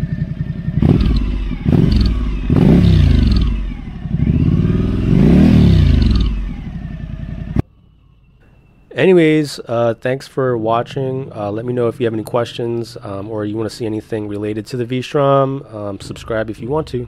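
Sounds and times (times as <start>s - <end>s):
motorcycle engine revving: 0.0s - 7.6s.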